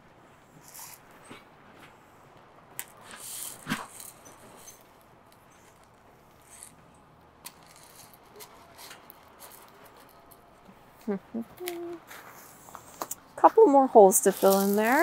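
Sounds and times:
pebbles trickling onto soil: 0:14.1 - 0:15.0.

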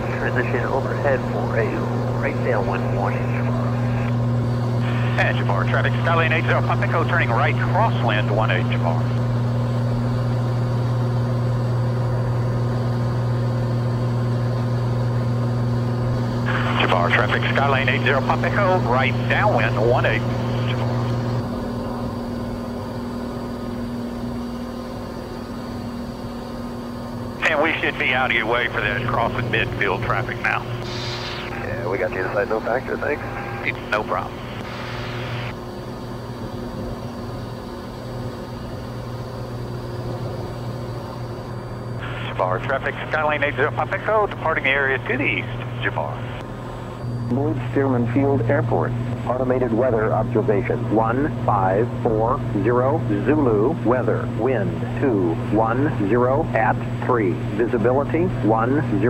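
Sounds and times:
radio static hiss: 0:00.0 - 0:09.4, 0:16.0 - 0:21.4, 0:27.4 - 0:35.6, 0:40.0 - 0:59.0
propeller plane engine drone: 0:00.0 - 0:59.0.

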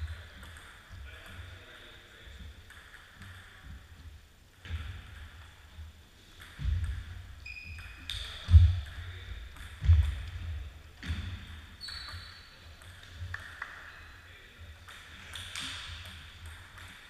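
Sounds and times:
ping-pong ball clicks: 0:00.0 - 0:01.5, 0:02.6 - 0:03.8, 0:06.4 - 0:07.2, 0:07.8 - 0:10.4, 0:11.8 - 0:13.9, 0:14.8 - 0:17.0
shoe squeaks: 0:07.4 - 0:08.4, 0:11.8 - 0:12.7.

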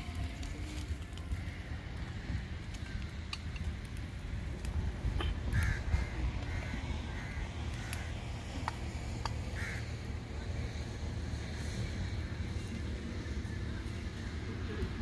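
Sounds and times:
low steady rumble: 0:00.0 - 0:15.0
crow cawing: 0:05.2 - 0:08.2, 0:09.5 - 0:10.1.

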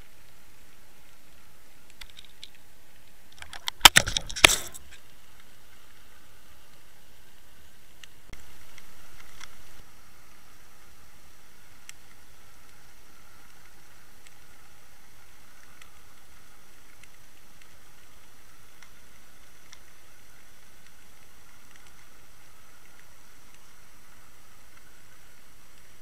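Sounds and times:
sharp clicks: 0:03.3 - 0:05.0.

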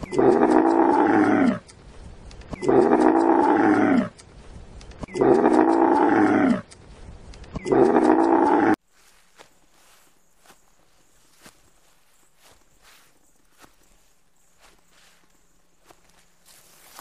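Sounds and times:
camel bellowing: 0:00.0 - 0:01.6, 0:02.5 - 0:04.2, 0:05.1 - 0:06.7, 0:07.6 - 0:08.8.

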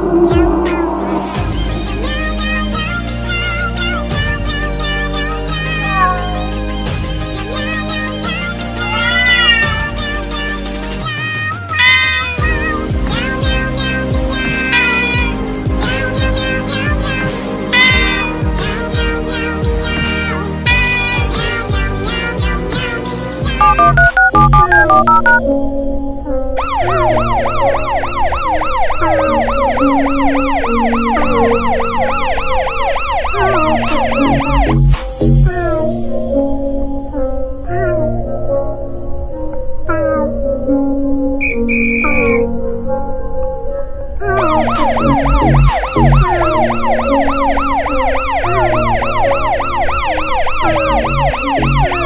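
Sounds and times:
background music with low bass: 0:00.0 - 0:32.7, 0:33.4 - 0:52.0
police siren yelping: 0:11.8 - 0:12.5, 0:23.6 - 0:25.4, 0:26.6 - 0:34.7, 0:44.4 - 0:52.0.

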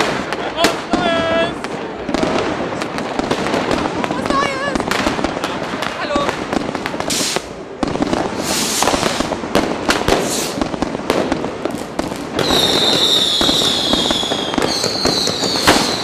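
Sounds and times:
firecracker and rocket bangs: 0:00.0 - 0:16.0
hissing rushes: 0:07.0 - 0:07.6, 0:08.2 - 0:10.8
shrill whistle: 0:12.4 - 0:16.0.

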